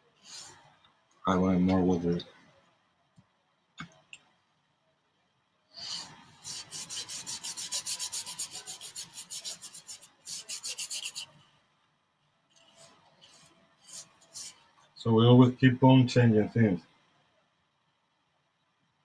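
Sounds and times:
paintbrush scrubbing on canvas: 0:05.8 - 0:11.4, 0:12.6 - 0:14.7.

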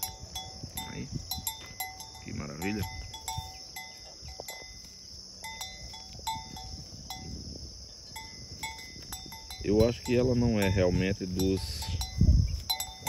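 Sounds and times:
high-pitched insect chorus: 0:00.0 - 0:13.0.

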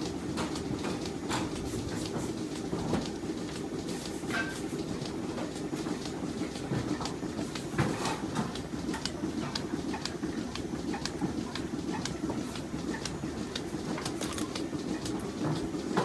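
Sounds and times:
machinery clicks and clanks: 0:00.0 - 0:16.0
milking machinery humming: 0:00.0 - 0:16.0.

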